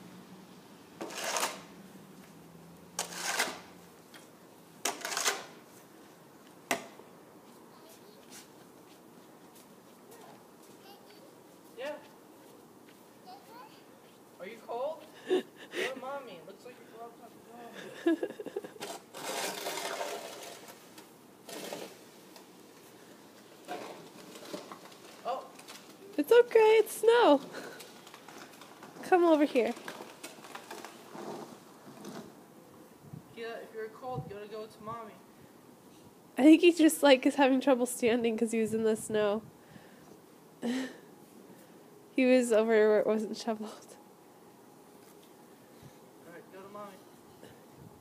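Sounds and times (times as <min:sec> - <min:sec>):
shovel scraping on concrete: 0:01.0 - 0:01.8, 0:03.0 - 0:05.8, 0:18.4 - 0:22.4, 0:23.6 - 0:25.8
snow crunching and scraping: 0:18.4 - 0:22.2.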